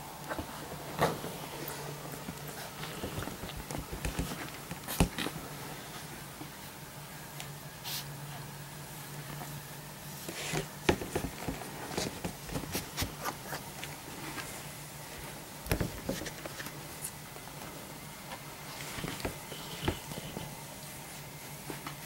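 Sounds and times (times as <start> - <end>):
faint steady hum: 0.0 - 22.0
puppies scrabbling on a blanket: 0.2 - 5.4, 10.2 - 14.6, 15.2 - 17.5.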